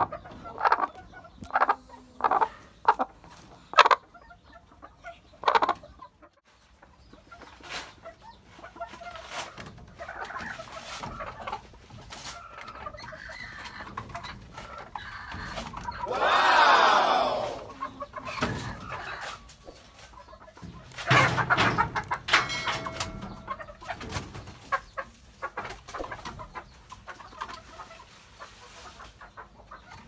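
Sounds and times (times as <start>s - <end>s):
hen clucking: 0.0s - 30.0s
chicken call rising and falling: 16.0s - 18.0s.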